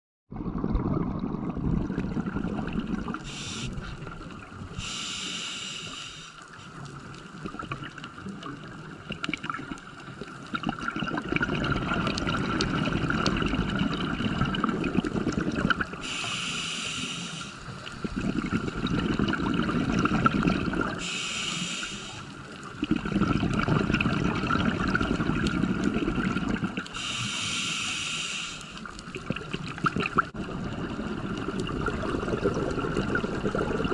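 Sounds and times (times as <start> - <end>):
diver breathing through regulator: 3.2 - 4.1, 4.8 - 6.4, 16.0 - 18.4, 21.0 - 22.3, 27.0 - 28.9.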